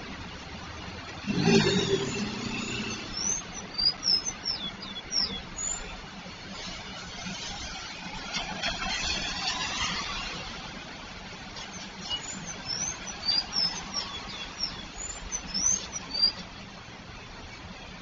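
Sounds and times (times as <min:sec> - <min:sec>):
vehicle passing with tyre noise: 0:00.0 - 0:17.2
high chirps: 0:01.2 - 0:05.9.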